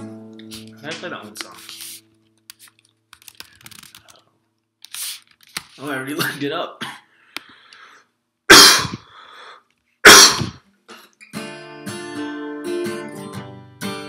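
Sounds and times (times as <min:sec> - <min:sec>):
acoustic guitar chords: 0:00.0 - 0:01.4, 0:11.2 - 0:14.0
man coughing: 0:06.2 - 0:07.1, 0:08.5 - 0:09.1, 0:10.1 - 0:10.6.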